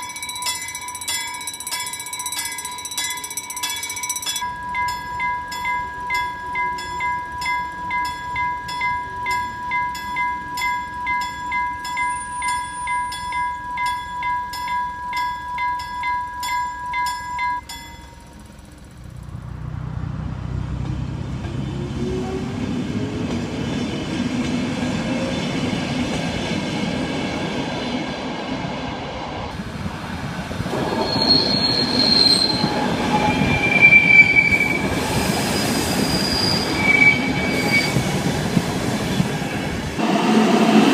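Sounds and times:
level crossing bell ringing: 0.0 - 18.6
electric train passing: 0.0 - 40.9
train wheels squealing: 10.5 - 14.6, 30.7 - 39.6.

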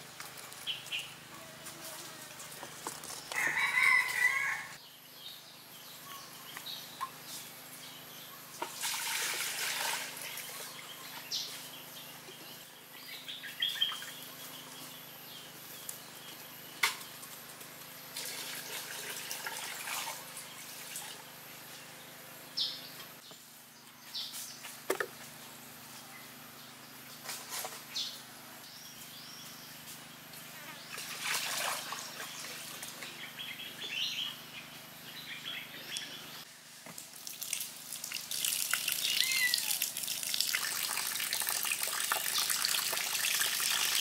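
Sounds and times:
small birds chirping: 0.3 - 8.6, 10.2 - 18.0, 32.0 - 36.5, 38.8 - 39.8
rooster crowing: 3.3 - 4.8.

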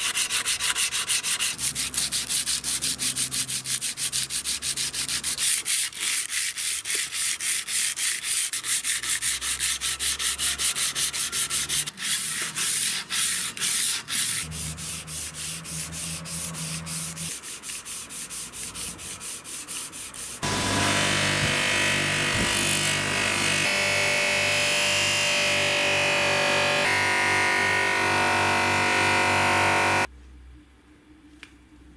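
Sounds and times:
file rasping on steel blade: 0.0 - 23.6.

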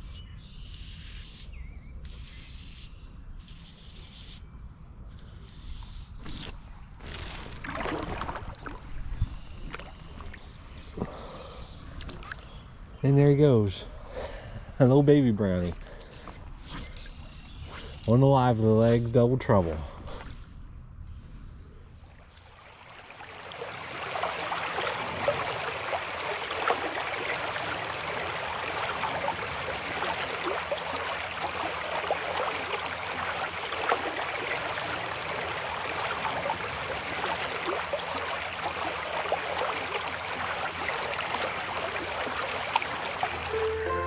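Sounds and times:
stream babbling over rocks: 22.5 - 44.0.

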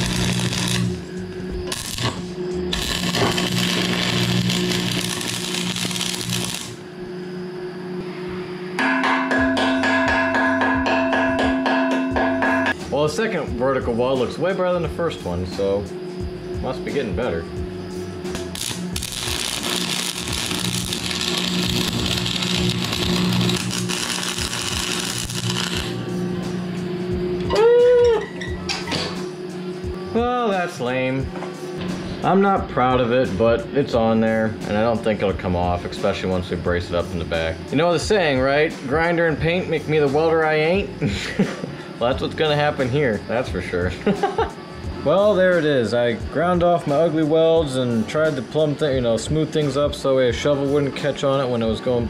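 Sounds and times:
welding arc crackling: 0.0 - 6.8, 18.3 - 26.0
low hum: 0.0 - 36.1.

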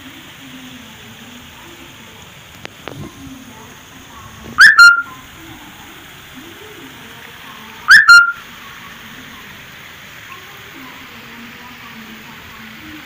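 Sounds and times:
faint steady hiss: 0.0 - 13.0
whistle blasts: 4.6 - 5.2, 7.9 - 8.4.

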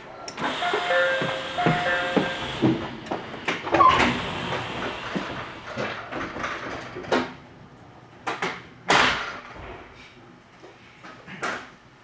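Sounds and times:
knocks and clatters: 4.9 - 7.4.

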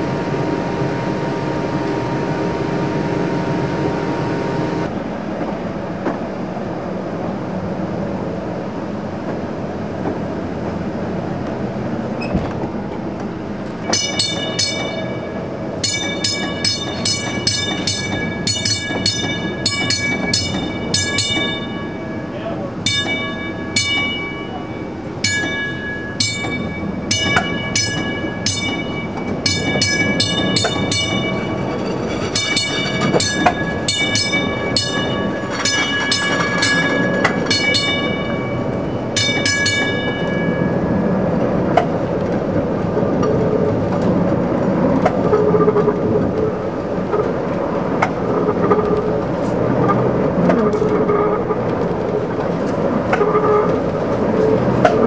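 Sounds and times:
streetcar wheels rumbling on rail: 0.0 - 55.0
sharp ringing clangs: 13.9 - 41.0.

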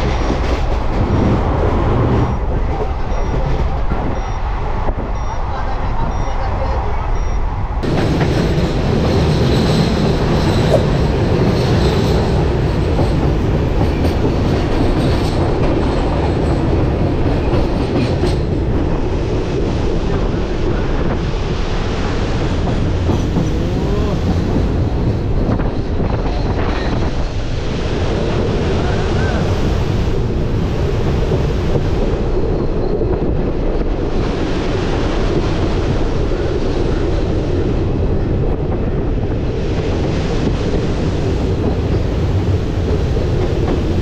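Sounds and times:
train wheels rumbling on track: 0.0 - 44.0
rail-joint clicks: 7.2 - 18.9.

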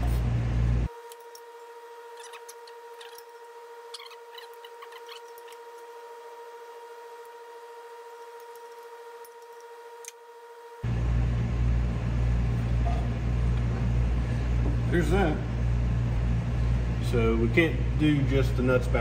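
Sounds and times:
steady electrical hum: 0.0 - 19.0.

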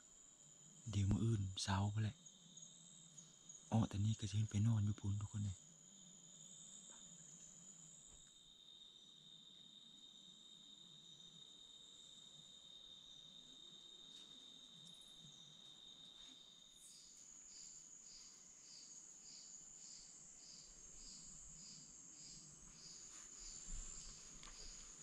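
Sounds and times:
insects trilling: 0.0 - 25.0
pulsing insect chirp: 0.0 - 25.0.

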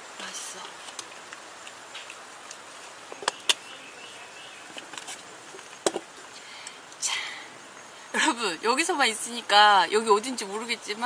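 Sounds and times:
faint high insect drone: 0.0 - 11.0
outdoor background hiss: 0.0 - 11.0.

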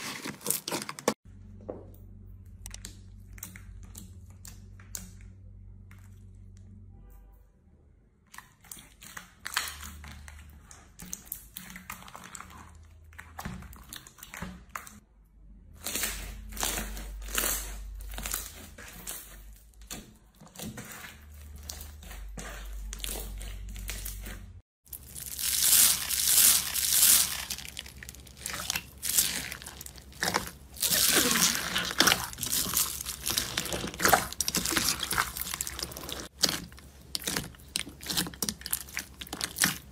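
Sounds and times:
slime crackling and popping: 22.8 - 39.9.

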